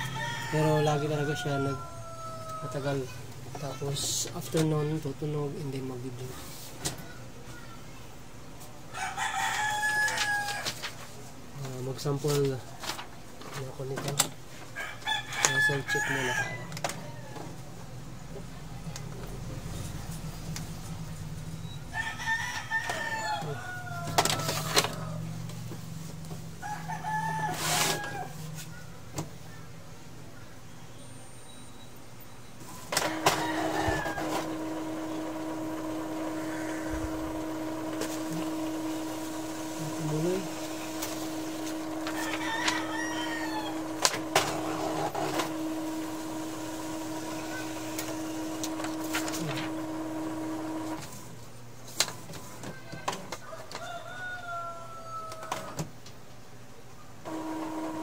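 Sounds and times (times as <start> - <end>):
rooster crowing: 0.0 - 3.2, 8.9 - 11.0, 14.8 - 17.8, 21.6 - 25.6, 26.5 - 29.7, 33.0 - 51.0, 52.5 - 55.9
paper clicks and rustles: 10.0 - 14.3, 37.8 - 39.2, 47.9 - 49.8
printer humming: 22.8 - 29.3, 32.6 - 51.4, 57.2 - 58.0.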